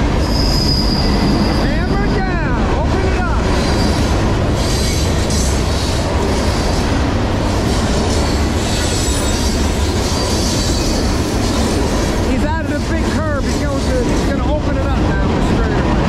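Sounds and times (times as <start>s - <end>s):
train wheels rumbling on rail: 0.0s - 16.0s
faint high wheel squeal: 0.2s - 1.8s.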